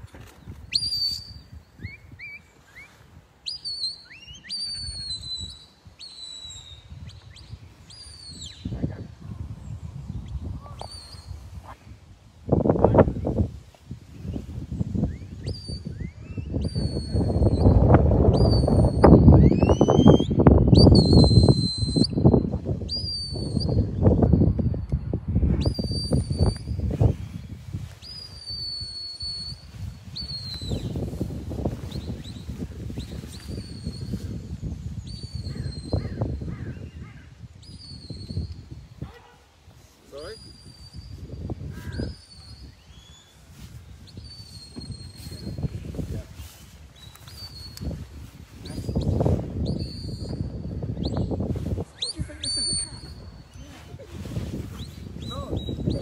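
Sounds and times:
high whistle blasts: 18.4 - 22.3.

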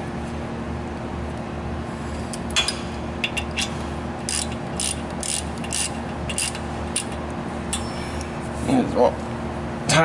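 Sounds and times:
socket wrench ratchet clicking: 3.3 - 7.2.

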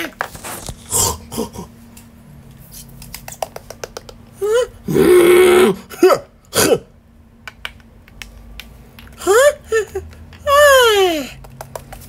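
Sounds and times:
person making gruff vocal noises: 0.8 - 1.8, 4.4 - 6.9, 9.2 - 11.4.

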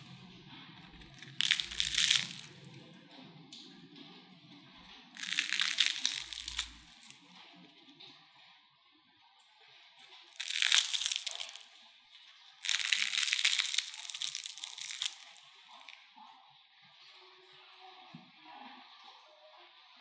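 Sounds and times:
crispy fried food crackling: 1.0 - 2.8, 5.2 - 7.3, 10.3 - 11.8, 12.6 - 16.0.

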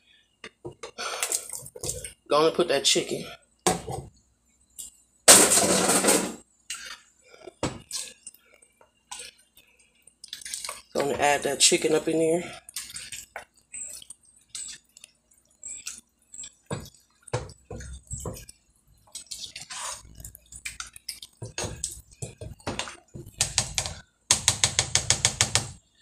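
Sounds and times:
spoon stirring sauce: 9.0 - 24.0.

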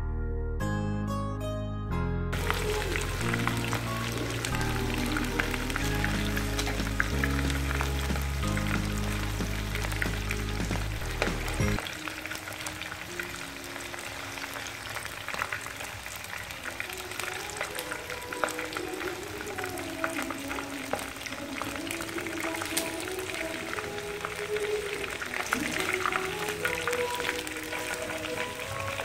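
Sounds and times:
background music with heavy bass: 0.0 - 11.8
chicken sizzling in hot oil: 2.4 - 29.0.

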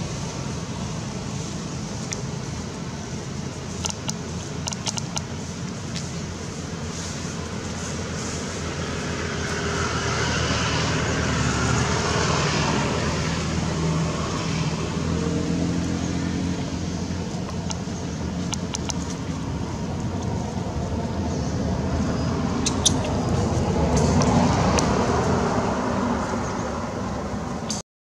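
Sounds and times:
road traffic rumble: 0.0 - 27.8
vehicle engine hum: 0.0 - 27.8
sharp clicks: 3.8 - 5.3, 17.4 - 19.2.

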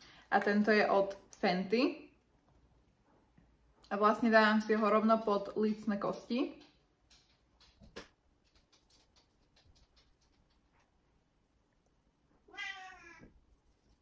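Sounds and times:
cat meowing: 12.4 - 13.4.

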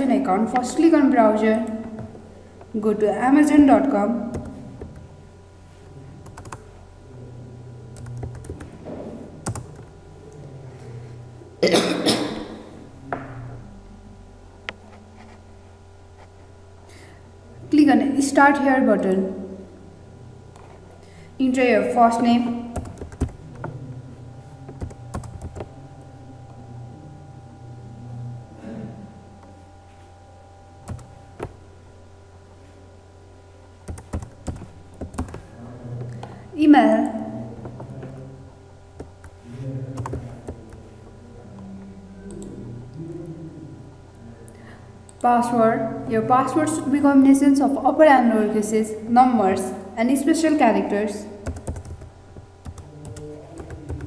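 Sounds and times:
low hum: 0.0 - 54.0
typing on computer keyboard: 6.3 - 6.6, 8.0 - 8.7, 9.4 - 9.9, 22.8 - 23.4, 24.8 - 25.7, 33.9 - 35.4, 40.0 - 40.8, 51.4 - 54.0.

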